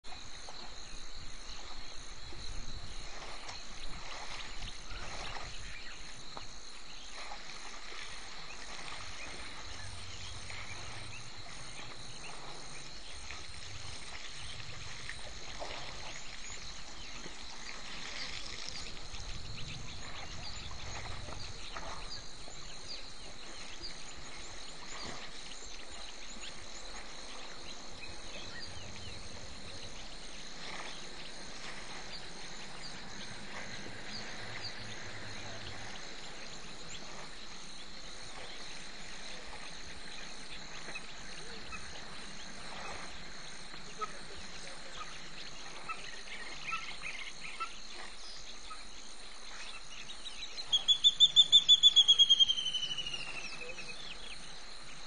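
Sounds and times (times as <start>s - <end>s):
frogs calling: 0.1s - 55.0s
chirps: 49.6s - 54.5s.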